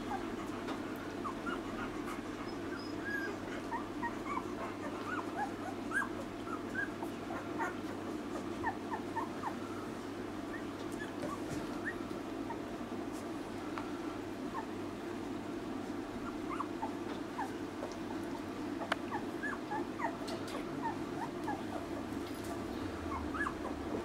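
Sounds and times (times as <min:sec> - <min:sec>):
puppies squeaking and whimpering: 0:01.1 - 0:09.6, 0:10.4 - 0:12.7, 0:16.1 - 0:22.2, 0:22.8 - 0:24.0.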